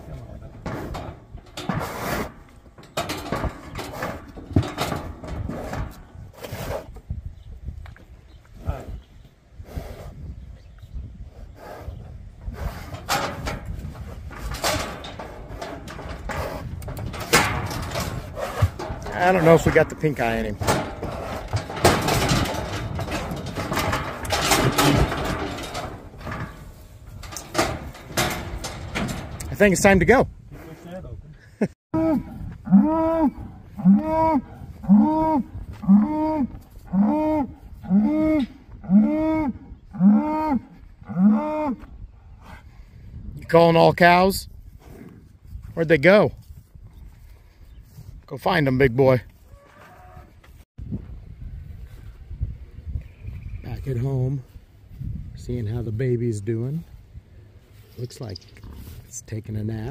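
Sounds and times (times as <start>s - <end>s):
low wind rumble: 0.0s - 59.9s
steel gate knocking and rattling: 0.4s - 6.2s, 12.9s - 30.2s
sharp metal clanks: 12.9s - 29.9s
bull calling: 32.0s - 41.9s.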